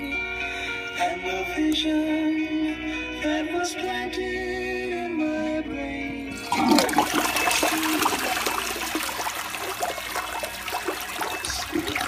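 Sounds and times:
toilet flushing: 0:06.4 - 0:12.0.

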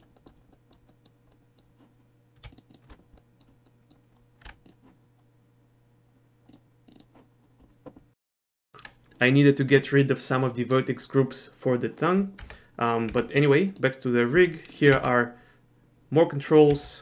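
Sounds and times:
computer mouse and keyboard clicks: 0:00.0 - 0:05.0, 0:06.5 - 0:07.3, 0:12.4 - 0:15.2.

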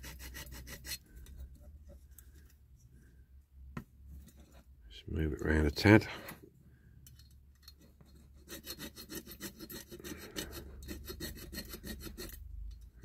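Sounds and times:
metal file scraping metal: 0:00.0 - 0:01.7, 0:07.6 - 0:13.0.

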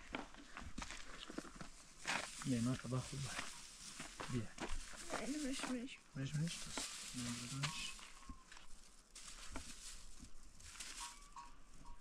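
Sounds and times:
plastic bag rustling: 0:02.2 - 0:11.9.

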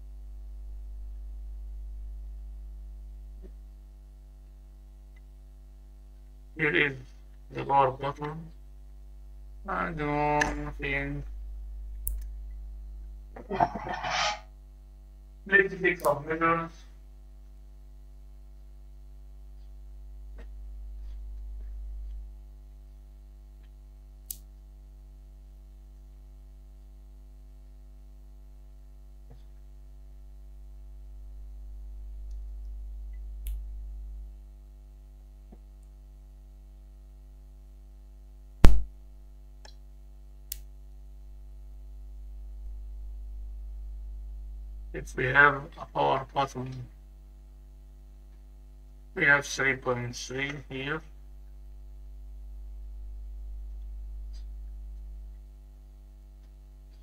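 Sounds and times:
electrical mains hum: 0:00.0 - 0:57.0
sharp clicks: 0:11.9 - 0:12.4.

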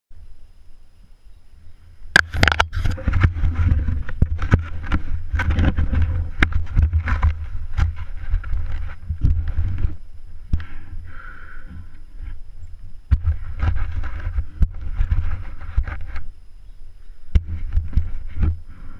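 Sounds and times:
wind rumble on microphone: 0:01.7 - 0:18.9
bike knocking and rattling: 0:02.2 - 0:10.9, 0:13.1 - 0:16.3, 0:17.2 - 0:18.9.

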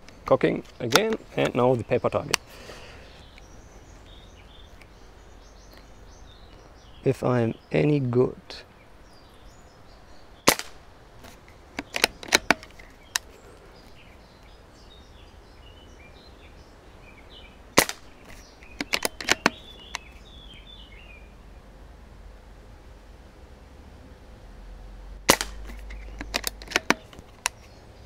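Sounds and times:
air rifle shots: 0:10.4 - 0:10.8, 0:11.8 - 0:12.8, 0:17.8 - 0:19.6, 0:25.3 - 0:27.1
rifle bolt clicks: 0:11.8 - 0:13.3, 0:17.8 - 0:20.1, 0:25.3 - 0:27.6.

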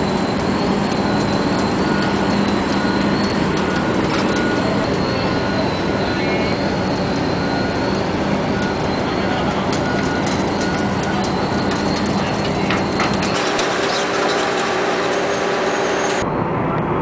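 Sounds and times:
bulldozer diesel engine running: 0:00.0 - 0:16.2
short high squeaks: 0:12.8 - 0:16.2.

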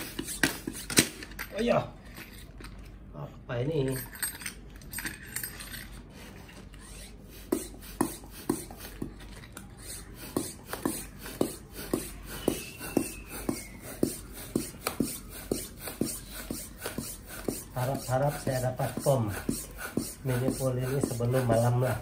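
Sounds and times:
hand pump strokes: 0:00.0 - 0:01.2, 0:06.3 - 0:22.0.

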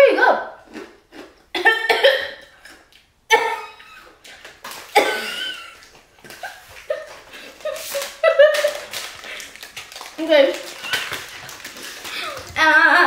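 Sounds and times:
person coughing: 0:01.6 - 0:02.4, 0:03.3 - 0:03.8, 0:04.9 - 0:05.7
person chuckling: 0:05.0 - 0:09.5.

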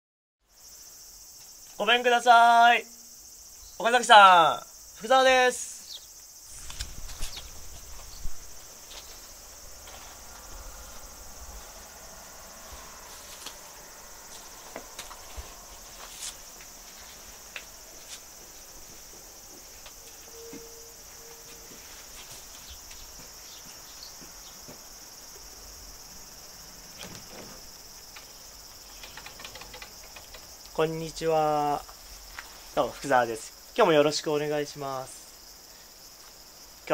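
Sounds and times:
high-pitched insect chorus: 0:00.4 - 0:36.9
faint clicks: 0:28.1 - 0:30.8.

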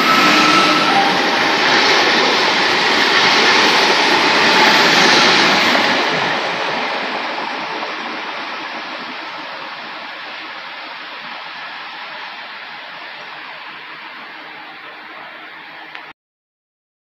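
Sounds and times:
electric train passing: 0:00.0 - 0:16.1.

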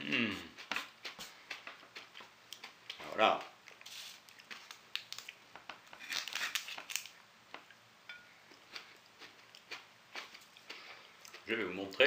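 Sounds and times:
paper wrapper crinkling: 0:06.0 - 0:07.2.

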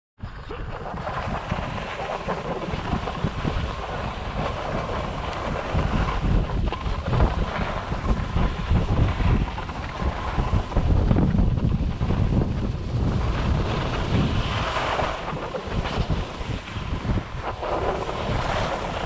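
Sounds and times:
wind rushing over microphone: 0:00.2 - 0:19.0
skis scraping on snow: 0:00.9 - 0:19.0.

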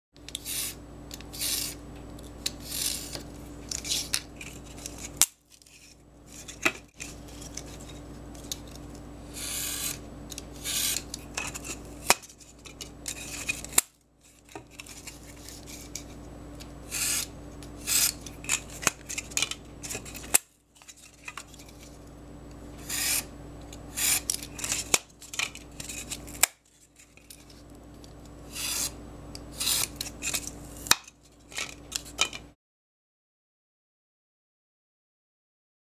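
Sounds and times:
knife scratching board: 0:00.3 - 0:01.8, 0:02.4 - 0:08.6, 0:09.3 - 0:16.2, 0:16.8 - 0:22.0, 0:22.8 - 0:23.3, 0:23.9 - 0:27.6, 0:28.4 - 0:32.4.

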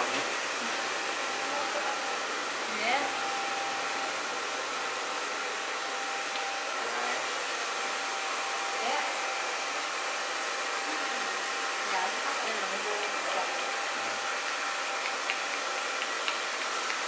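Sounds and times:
electric blower rushing air: 0:00.0 - 0:17.0.

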